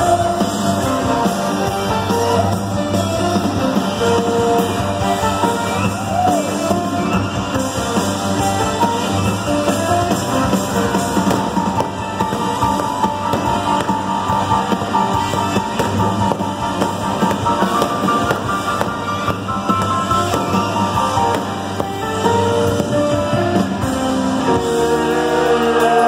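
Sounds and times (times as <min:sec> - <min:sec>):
drums: 0:00.0 - 0:26.0
live rock band: 0:00.0 - 0:26.0.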